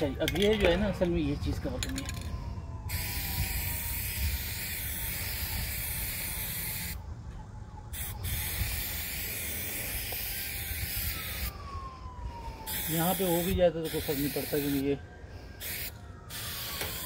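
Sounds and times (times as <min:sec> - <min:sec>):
spray paint can hissing: 0:02.9 - 0:07.0, 0:07.9 - 0:11.5, 0:12.7 - 0:14.8, 0:15.6 - 0:17.0.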